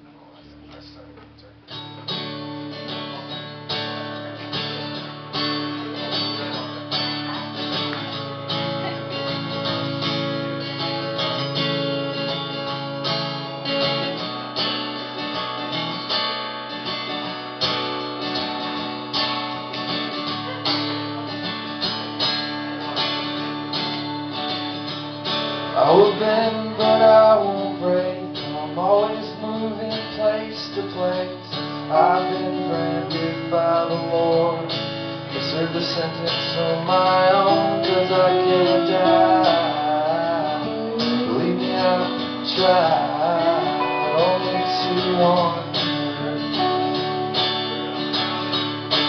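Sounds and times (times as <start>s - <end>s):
strummed acoustic guitar: 0.0s - 49.0s
live band playing instrumental: 35.5s - 49.0s.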